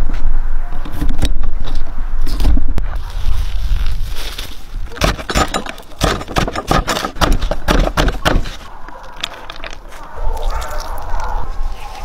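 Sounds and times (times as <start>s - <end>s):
green onions rustling: 2.9s - 5.0s.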